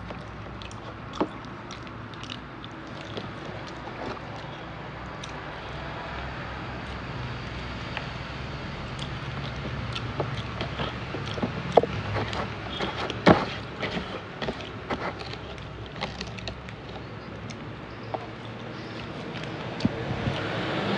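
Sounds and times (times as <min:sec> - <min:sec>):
chewing and mouth clicks: 0:00.0 - 0:07.2, 0:08.8 - 0:20.8
fingers tapping cardboard box: 0:09.6 - 0:17.0.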